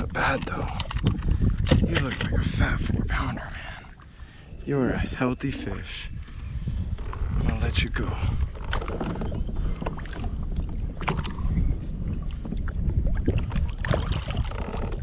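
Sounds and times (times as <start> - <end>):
wind rumbling on microphone: 0.0 - 15.0
water splashes: 8.6 - 11.6, 12.2 - 15.0.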